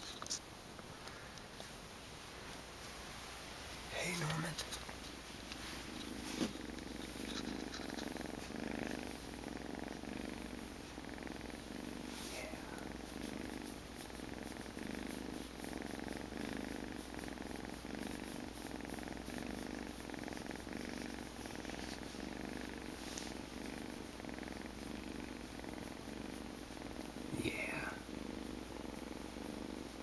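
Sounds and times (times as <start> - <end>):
cat purring: 0.0 - 30.0.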